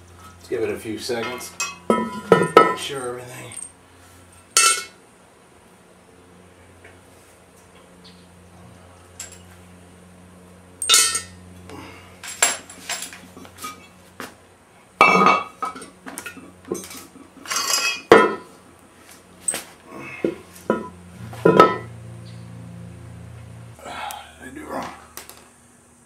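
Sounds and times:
metal parts and tools clanking: 1.2s - 3.7s, 4.5s - 5.0s, 9.2s - 9.5s, 10.8s - 11.3s, 12.2s - 13.9s, 15.0s - 18.5s, 20.7s - 21.9s.

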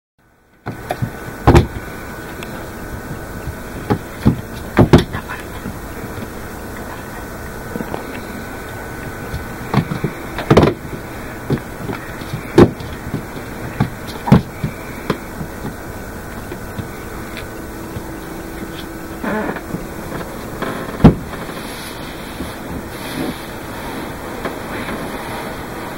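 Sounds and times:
steady low hiss: 0.2s - 25.9s
sharp taps and thumps: 0.7s - 1.9s, 2.9s - 6.4s, 9.3s - 10.9s, 11.5s - 18.8s.

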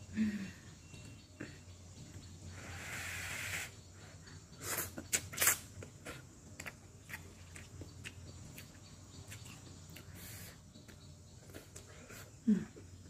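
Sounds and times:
noodles slurped: 4.6s - 6.2s
chewing with mouth clicks: 4.8s - 12.3s.

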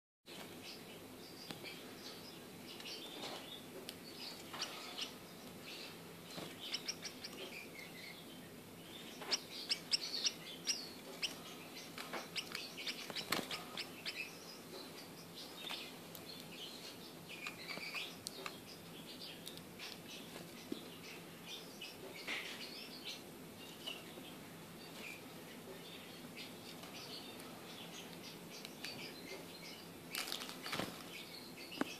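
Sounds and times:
finches chirping: 0.6s - 31.9s.

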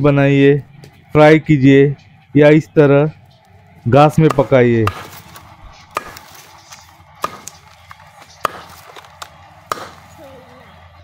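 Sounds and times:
billhook chopping on wooden block: 4.2s - 6.5s, 7.2s - 7.8s, 8.4s - 10.0s.

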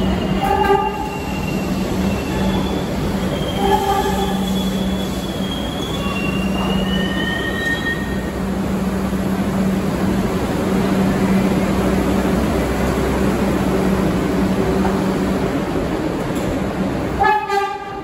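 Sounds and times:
high wheel squeals: 0.0s - 8.3s
subway wheels rumbling on rails: 0.0s - 18.0s.

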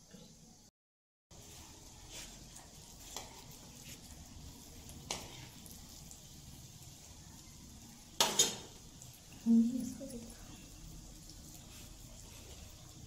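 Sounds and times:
faint sizzle of frying: 0.0s - 0.7s, 1.3s - 13.0s.

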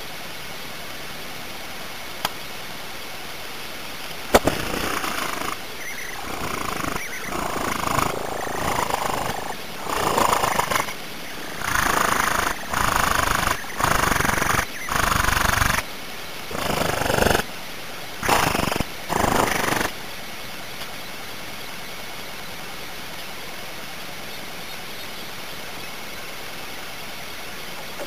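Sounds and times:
steady hiss: 0.0s - 28.0s
nestlings being fed: 4.3s - 15.8s, 16.4s - 17.4s, 18.2s - 19.9s.

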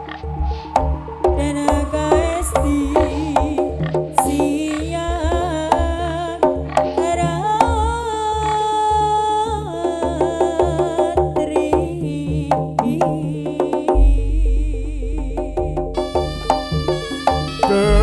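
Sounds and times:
drums and percussion rhythm: 0.0s - 8.2s, 9.8s - 14.4s, 15.3s - 18.0s
deep low note: 16.0s - 18.0s
wavering melody line: 16.0s - 18.0s.

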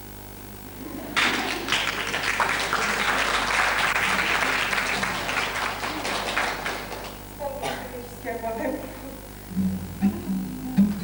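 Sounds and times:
audience applauding: 1.0s - 7.3s.

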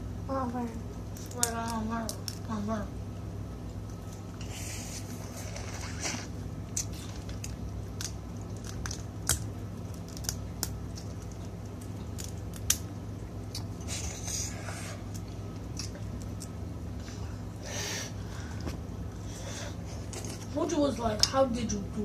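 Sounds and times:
steady low hum: 0.0s - 22.0s
crab shells cracking: 1.0s - 2.5s, 6.6s - 13.8s, 15.0s - 16.7s.

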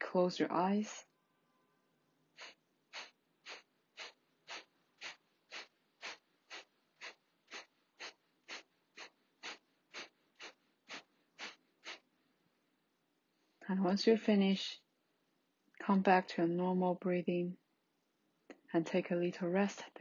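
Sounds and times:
forceful nasal exhalations: 2.3s - 12.1s.

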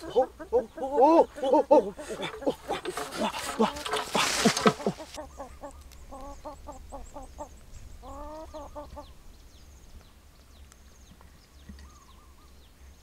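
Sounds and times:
chicken clucking: 0.0s - 9.1s
loud rustle: 2.0s - 5.2s.

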